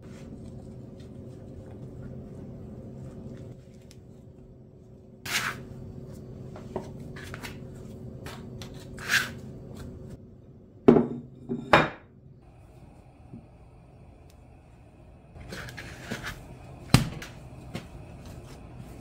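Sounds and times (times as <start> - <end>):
scraping and rubbing dough: 0.0 - 10.2, 15.3 - 16.8.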